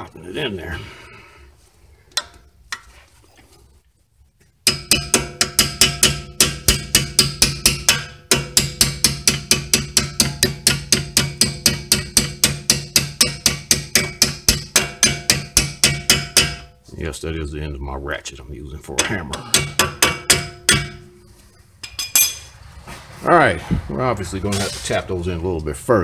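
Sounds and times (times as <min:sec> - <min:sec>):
ringing metal-on-metal tapping: 0:04.6 - 0:16.8, 0:19.0 - 0:22.5.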